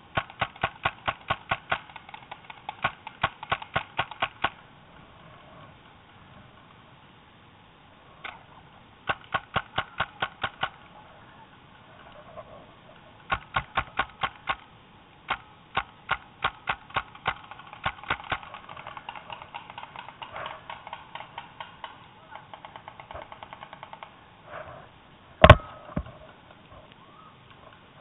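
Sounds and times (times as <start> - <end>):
paintball marker firing: 0.1 - 4.6, 13.3 - 14.7, 15.3 - 24.1, 25.4 - 25.8.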